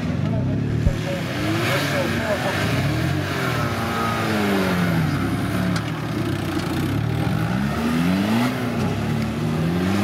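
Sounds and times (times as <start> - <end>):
engine revving hard: 1.0 - 5.7, 7.0 - 10.0.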